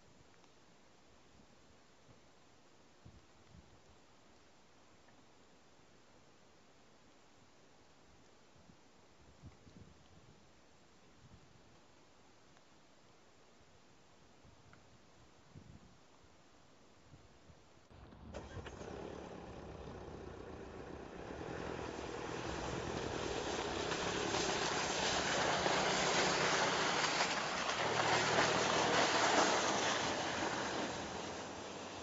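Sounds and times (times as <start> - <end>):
car engine running: 18.0 - 32.0
tyres on snow: 18.0 - 32.0.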